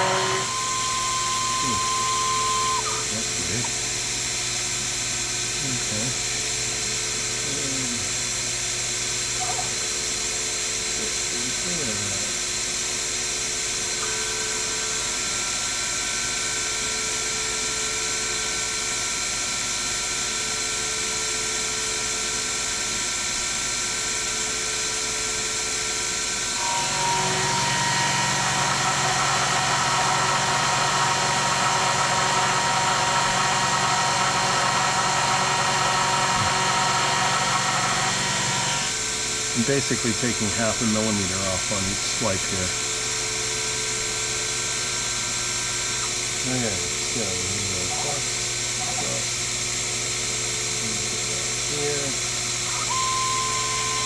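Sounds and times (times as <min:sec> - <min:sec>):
end mill cutting metal: 0:00.0 - 0:03.8, 0:26.5 - 0:39.8
mill spindle motor whining: 0:00.0 - 0:04.1, 0:26.2 - 0:40.5, 0:50.0 - 0:54.0.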